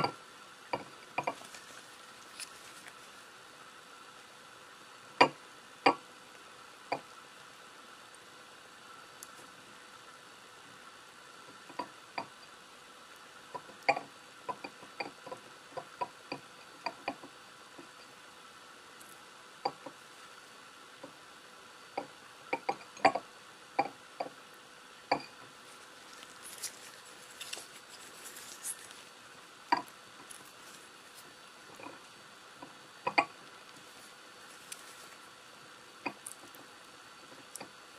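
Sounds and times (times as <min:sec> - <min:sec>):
soft rustle: 0:00.9 - 0:03.6, 0:25.4 - 0:32.2, 0:33.5 - 0:35.5.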